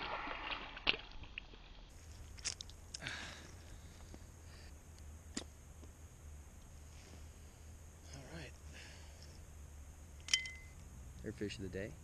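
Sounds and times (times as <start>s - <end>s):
wet crunching and scraping: 0.0s - 3.0s.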